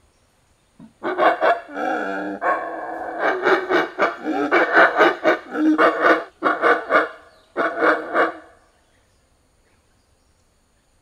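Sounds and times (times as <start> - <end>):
monkeys yelling: 0.9 - 8.5.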